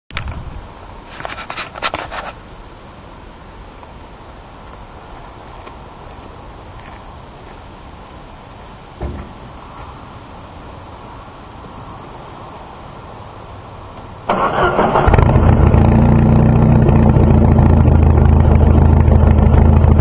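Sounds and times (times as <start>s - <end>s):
crickets chirring: 0.1s - 20.0s
low thud: 9.0s - 9.5s.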